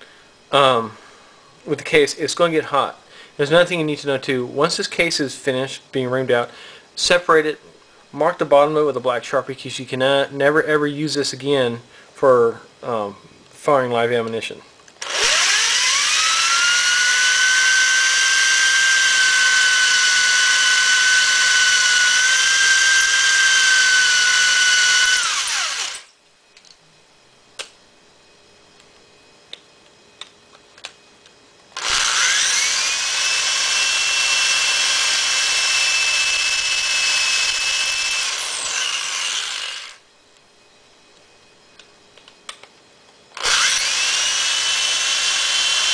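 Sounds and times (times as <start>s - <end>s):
electric drill whining: 15.0s - 26.1s, 31.7s - 40.0s, 43.4s - 45.9s.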